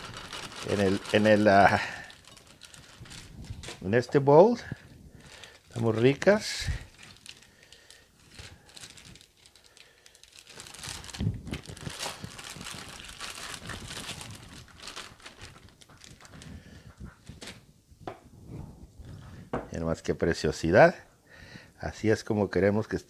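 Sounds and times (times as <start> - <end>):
plastic bag crinkling: 0.0 - 17.6.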